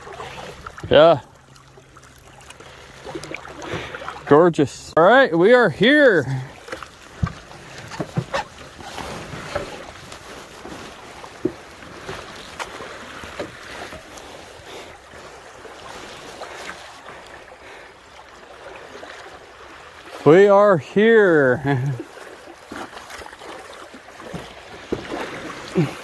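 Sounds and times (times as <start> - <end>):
water sloshing around canoe hull: 0.0 - 26.0.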